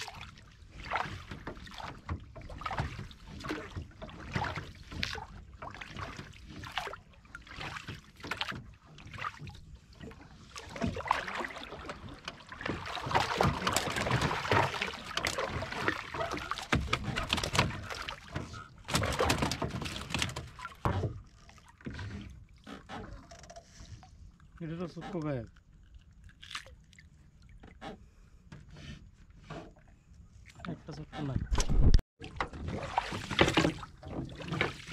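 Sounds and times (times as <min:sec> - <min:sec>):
fishing net rustling and knocking: 0:10.7 - 0:22.0, 0:31.5 - 0:34.9.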